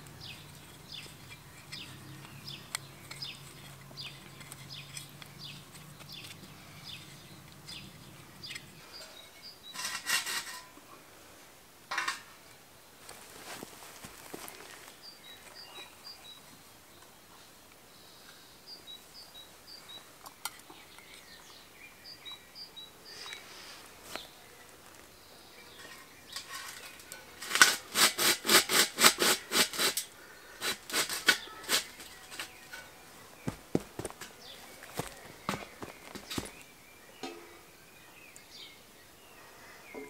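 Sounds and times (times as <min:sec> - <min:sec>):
metal can clicks and scrapes: 0:00.3 - 0:08.7, 0:09.8 - 0:10.7, 0:25.8 - 0:32.9.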